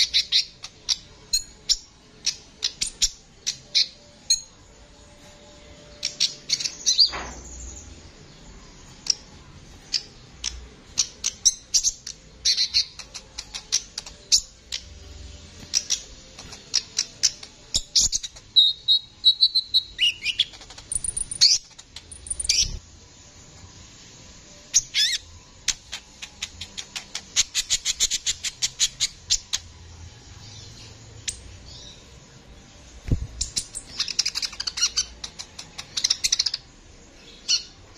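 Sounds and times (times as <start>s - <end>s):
sunbird singing: 5.9s - 22.8s, 24.6s - 29.8s.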